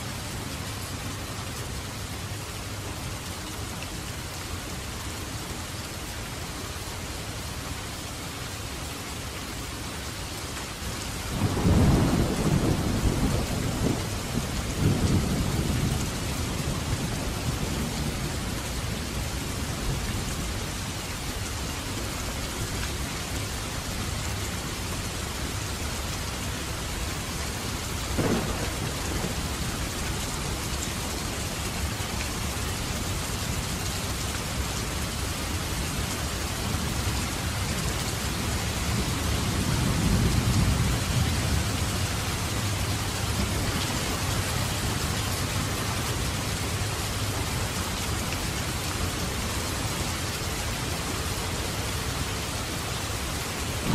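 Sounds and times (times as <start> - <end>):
heavy rain: 0.0 - 53.9
thunder rumbling: 11.4 - 18.6, 28.1 - 32.0
sharp thunder crack: 28.2 - 29.9.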